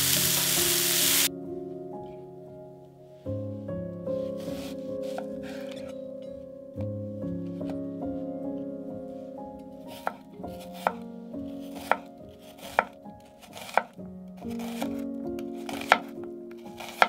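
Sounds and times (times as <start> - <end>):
soft background music: 0.0 - 17.0
knife cutting on cutting board: 11.7 - 13.9, 14.5 - 15.0, 15.7 - 16.1, 16.8 - 17.0.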